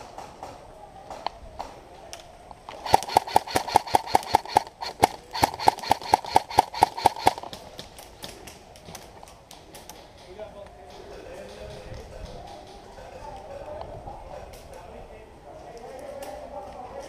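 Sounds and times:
airsoft rifle rapid firing: 0:02.8 - 0:07.6.

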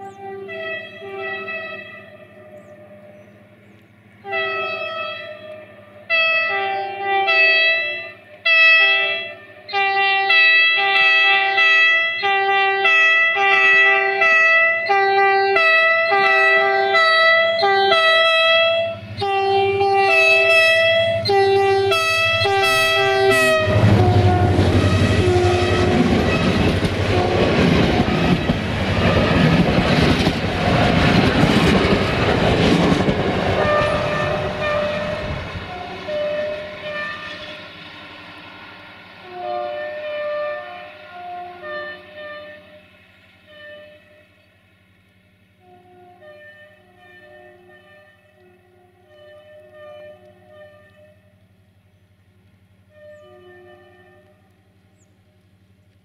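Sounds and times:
locomotive air horn short blasts: 0:00.0 - 0:03.2, 0:04.2 - 0:29.6, 0:33.5 - 0:37.8, 0:39.2 - 0:44.5, 0:45.6 - 0:51.4, 0:52.8 - 0:54.8
train engine roar: 0:00.0 - 0:56.0
wheels clattering over rail joints: 0:23.2 - 0:38.1.

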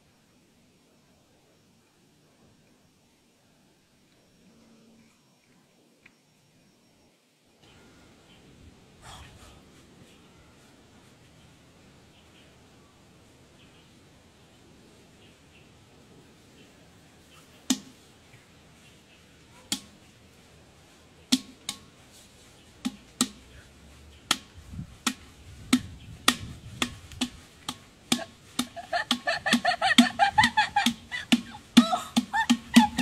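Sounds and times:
hollow percussive knocks: 0:22.8 - 0:23.6, 0:24.3 - 0:33.0.

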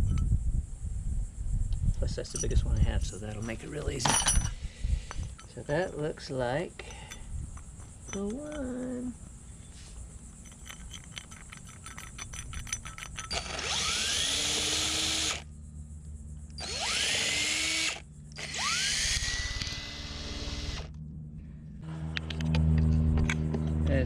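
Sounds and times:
power drill motor whine: 0:13.3 - 0:15.4, 0:16.6 - 0:21.0.

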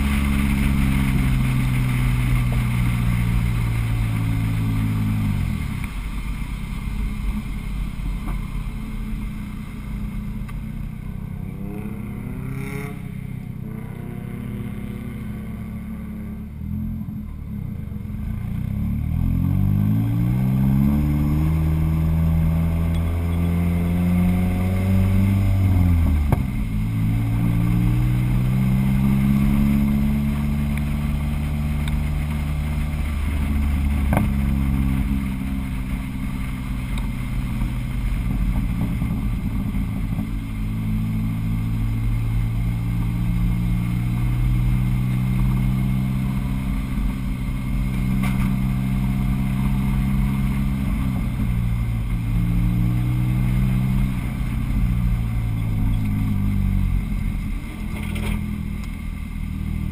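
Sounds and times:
car engine revving: 0:00.0 - 0:59.9.

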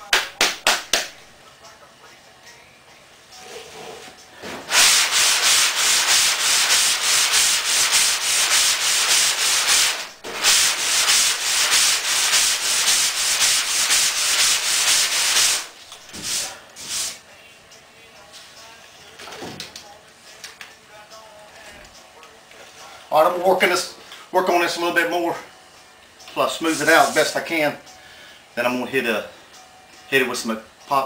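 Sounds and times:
sanding block scrubbing metal: 0:04.7 - 0:17.2.

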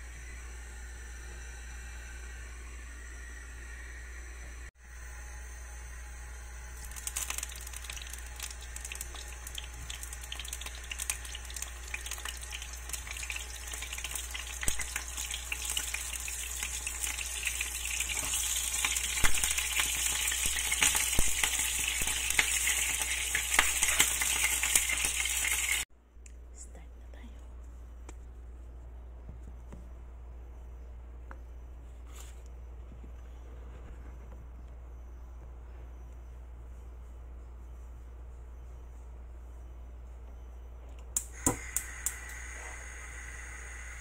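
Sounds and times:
eggplant frying in hot oil: 0:06.8 - 0:25.9.

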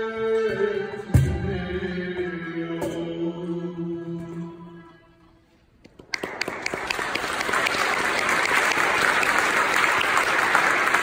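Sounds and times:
audience applause: 0:06.0 - 0:11.0.

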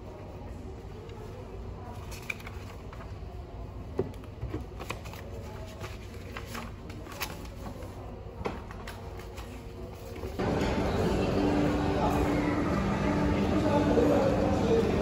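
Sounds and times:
paper rustling: 0:01.9 - 0:03.2, 0:04.5 - 0:10.4.

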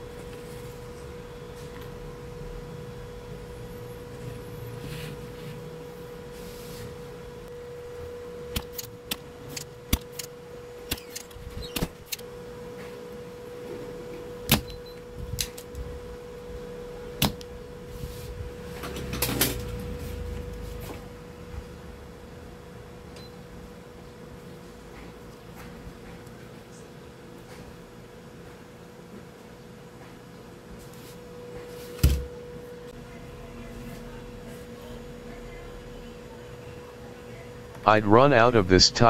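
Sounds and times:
steady hum: 0:00.0 - 0:18.6, 0:37.7 - 0:39.0.

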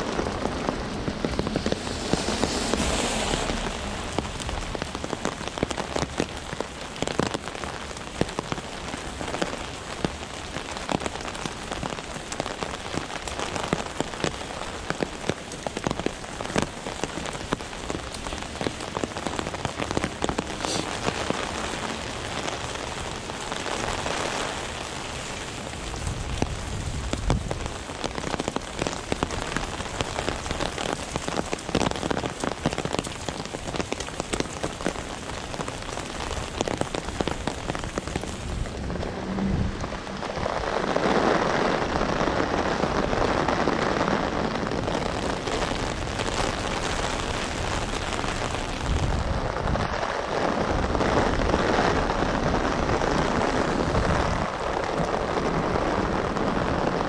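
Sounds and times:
low rumble: 0:00.0 - 0:05.8, 0:37.3 - 0:41.0
heavy rain pattering: 0:00.0 - 0:57.0
raindrops ticking close by: 0:00.0 - 0:57.0.

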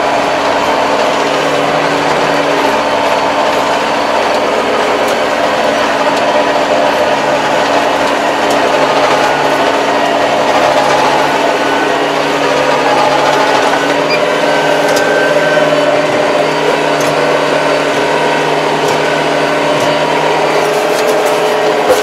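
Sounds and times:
tractor diesel engine running: 0:00.0 - 0:22.0.

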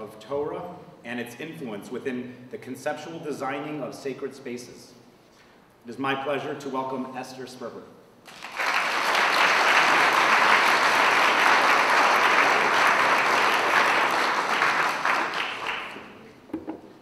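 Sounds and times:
audience applauding: 0:08.3 - 0:16.3.

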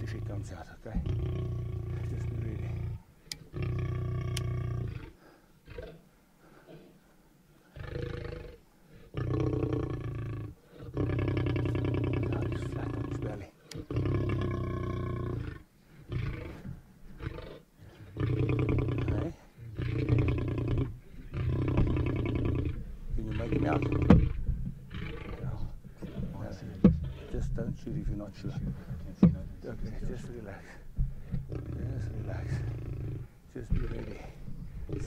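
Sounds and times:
lion growling: 0:00.0 - 0:07.0, 0:07.7 - 0:35.0.

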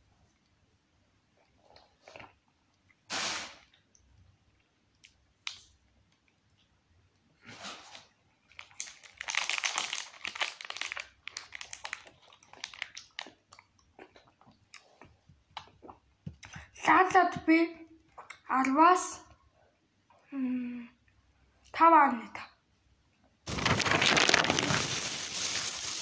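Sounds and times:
soft eating sounds: 0:00.1 - 0:03.1, 0:03.7 - 0:09.2, 0:10.9 - 0:16.8
plastic wrapper crinkling: 0:08.5 - 0:13.4, 0:23.5 - 0:26.0.

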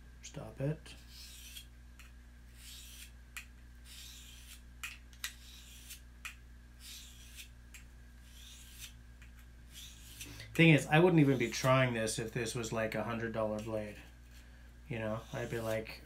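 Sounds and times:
blade sharpening strokes: 0:01.0 - 0:01.7, 0:02.6 - 0:03.2, 0:03.8 - 0:04.6, 0:05.2 - 0:06.0, 0:06.8 - 0:07.5, 0:08.2 - 0:09.0, 0:09.7 - 0:10.6, 0:11.2 - 0:11.7.

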